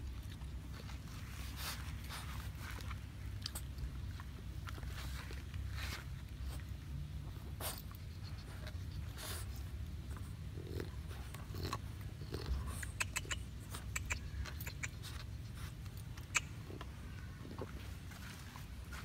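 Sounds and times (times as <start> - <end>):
dog gnawing bark: 7.6 - 17.8
bark cracking clicks: 12.7 - 17.0.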